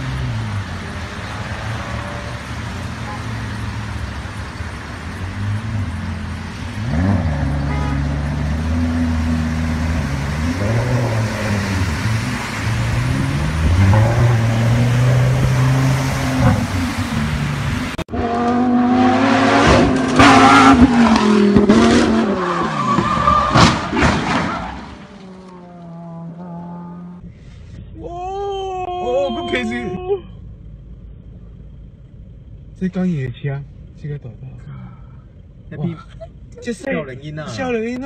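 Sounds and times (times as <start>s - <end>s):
car engine revving: 0.0s - 24.0s.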